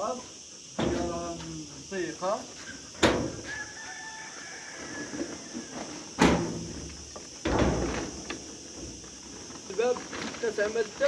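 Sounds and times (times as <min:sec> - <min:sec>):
metal door banging: 0:03.0 - 0:03.5, 0:06.2 - 0:09.0.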